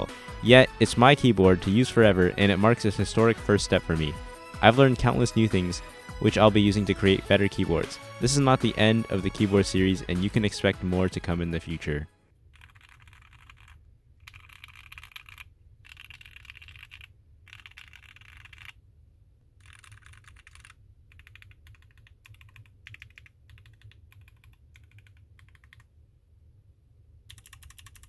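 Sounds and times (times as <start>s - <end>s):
mechanical keyboard typing: 12.5s - 18.8s, 19.6s - 25.9s, 27.3s - 28.0s.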